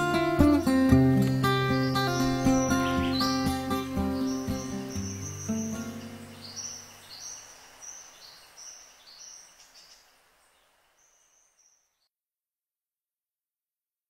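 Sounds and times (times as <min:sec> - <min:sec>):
music track: 0:00.0 - 0:06.2.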